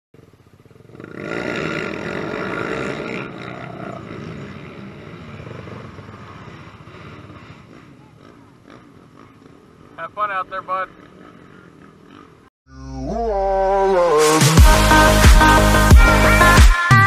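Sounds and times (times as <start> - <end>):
atv engines revving: 0.2 - 13.7.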